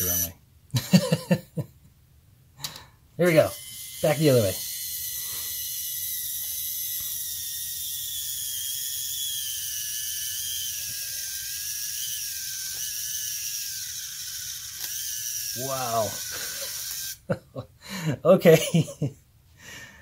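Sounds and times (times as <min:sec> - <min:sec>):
geared electric motor whining: 0:00.0 - 0:00.4, 0:03.2 - 0:17.3.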